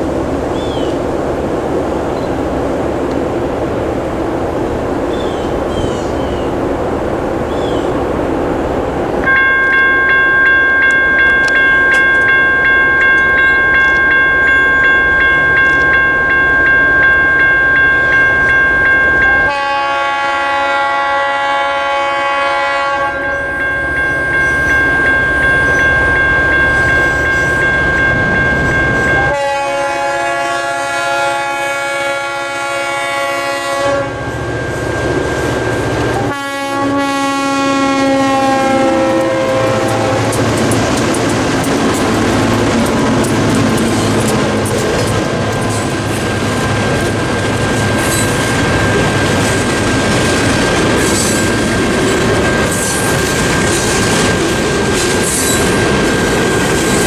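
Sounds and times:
electronic crossing bell ringing: 0:09.2 - 0:19.9, 0:23.1 - 0:29.4, 0:33.8 - 0:36.3, 0:46.3 - 0:50.4
locomotive horn blasts: 0:19.3 - 0:24.0, 0:29.0 - 0:34.5, 0:36.1 - 0:40.4.

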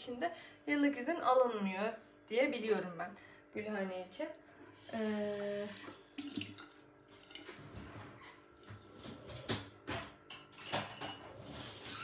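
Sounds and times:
water at kitchen counter: 0:04.7 - 0:12.0.

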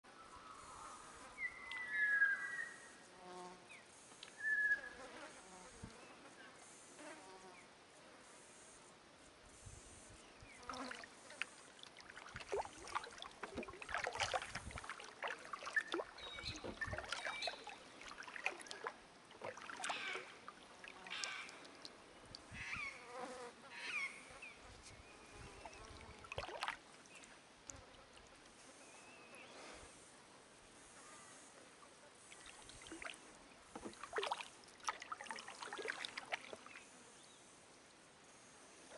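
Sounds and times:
kayak paddle in calm water: 0:09.4 - 0:23.0, 0:24.8 - 0:38.9
flies buzzing: 0:09.8 - 0:21.6
water splash and drip: 0:10.7 - 0:22.6, 0:25.8 - 0:27.2, 0:32.3 - 0:36.8.

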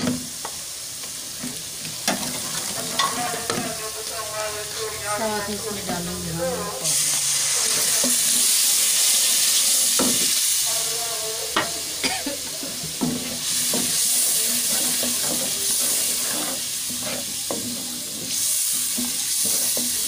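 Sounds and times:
masala sizzling in oil: 0:00.0 - 0:20.0
spatula scraping pot: 0:13.0 - 0:20.0.

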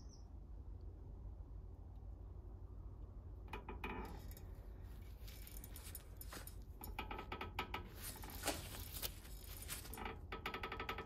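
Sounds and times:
metallic clicks and scrapes: 0:03.6 - 0:11.0.

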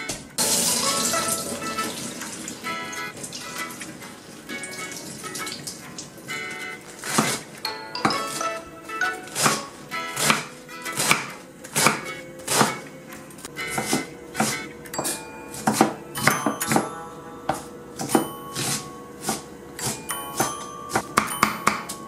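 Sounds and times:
knife chopping on wooden board: 0:07.0 - 0:08.4, 0:09.2 - 0:12.9, 0:13.7 - 0:16.9, 0:17.5 - 0:21.9.

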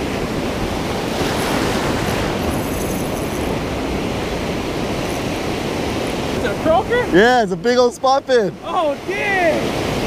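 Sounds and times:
wind rumbling on microphone: 0:00.0 - 0:07.1
ocean surf breaking: 0:00.0 - 0:10.0.

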